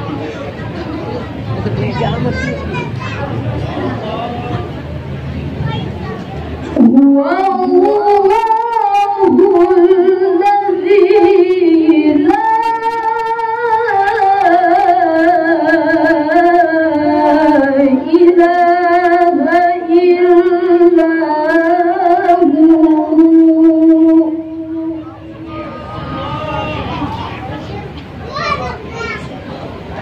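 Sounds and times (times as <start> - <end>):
woman reciting melodically: 6.8 - 26.2.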